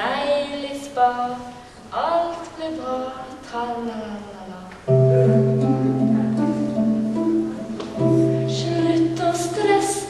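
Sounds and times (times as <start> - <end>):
slow gentle instrumental music: 4.9 - 10.0.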